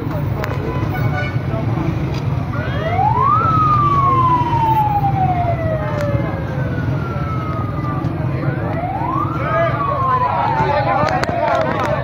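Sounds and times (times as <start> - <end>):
crowd chatter: 0.0 - 12.0
siren wailing: 2.5 - 12.0.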